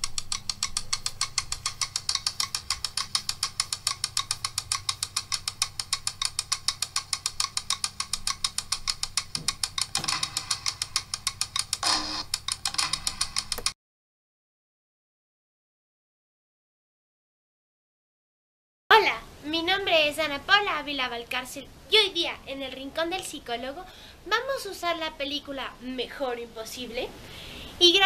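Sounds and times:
intro music with fast ticking: 0.0s - 13.8s.

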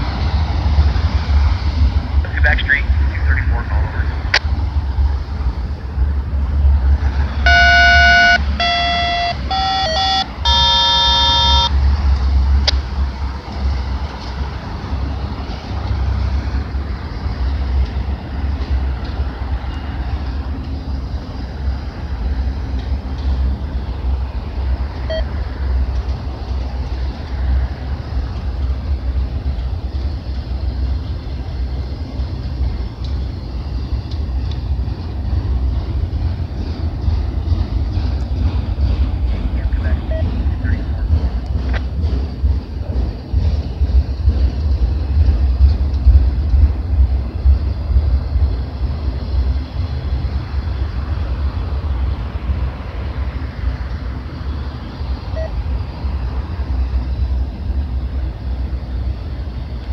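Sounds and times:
train rumbling over a bridge: 0.0s - 59.9s
train horn blasts: 7.4s - 11.8s.

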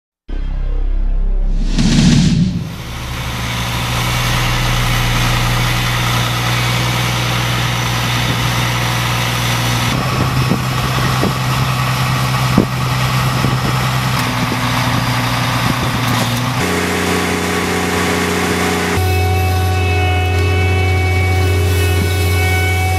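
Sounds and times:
whoosh: 0.3s - 7.8s
diesel engine running: 0.3s - 22.9s.

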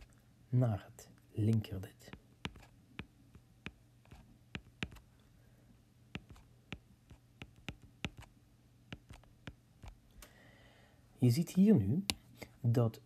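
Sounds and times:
low steady hum: 0.0s - 13.0s
stylus tapping on tablet: 1.5s - 5.1s, 6.2s - 8.3s, 8.9s - 10.0s.

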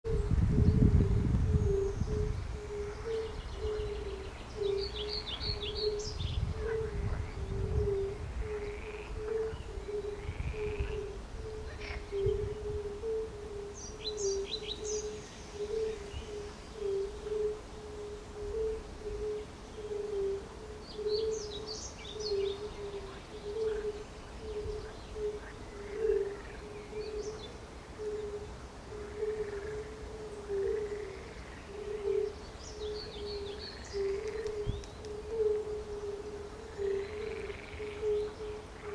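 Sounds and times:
songbirds singing: 0.1s - 38.9s
toads calling: 1.6s - 27.4s, 28.0s - 38.9s.

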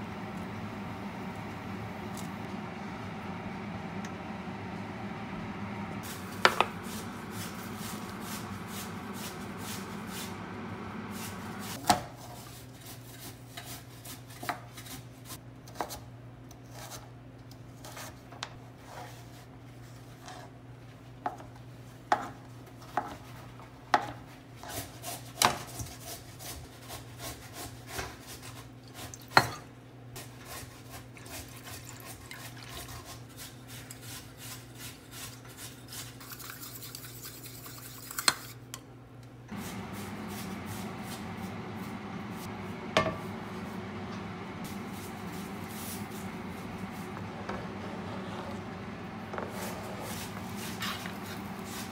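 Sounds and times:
steady low hum: 0.0s - 11.8s, 38.9s - 51.9s.

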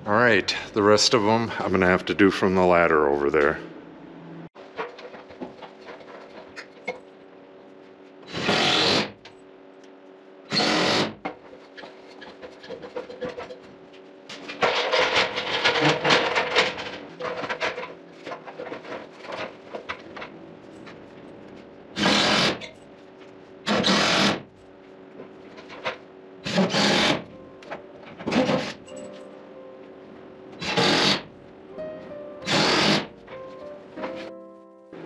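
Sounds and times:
steady low hum: 0.0s - 4.5s, 16.3s - 35.0s
ladder scraping and rattling: 11.4s - 21.6s.

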